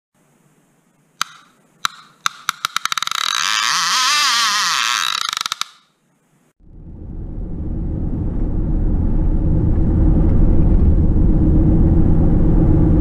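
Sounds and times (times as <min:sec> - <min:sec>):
fishing reel clicker whirring: 0:01.2 - 0:05.9.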